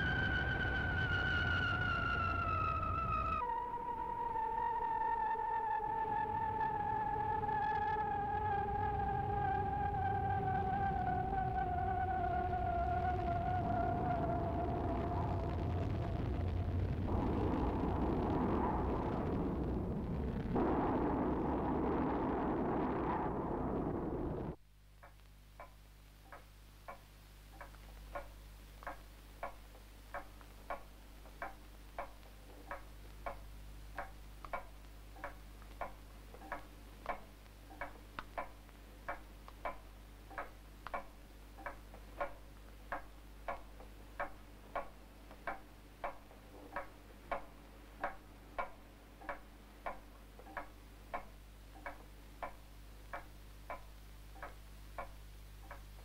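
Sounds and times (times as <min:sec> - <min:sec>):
low steady hum: 0:00.0 - 0:56.0
clock ticking: 0:25.0 - 0:56.0.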